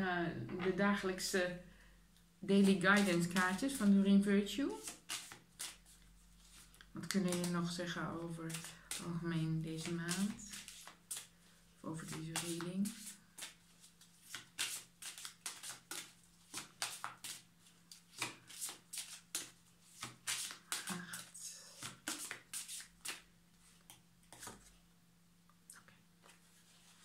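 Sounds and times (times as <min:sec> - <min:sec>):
faint steady hum: 0:00.0 - 0:27.0
cards shuffled by hand: 0:02.6 - 0:04.0, 0:04.8 - 0:07.6, 0:08.4 - 0:11.3, 0:12.0 - 0:24.8.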